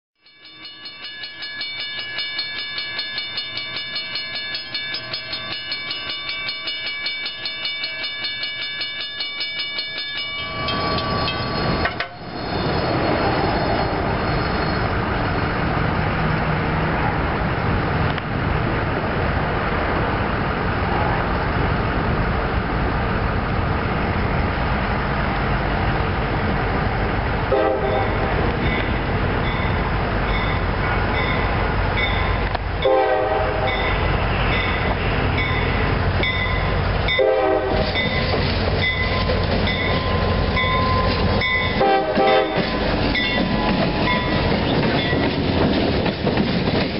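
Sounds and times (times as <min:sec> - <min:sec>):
crossing warning bell ringing: 0:00.2 - 0:15.8, 0:27.5 - 0:46.4
diesel locomotive engines rumbling: 0:00.6 - 0:46.9.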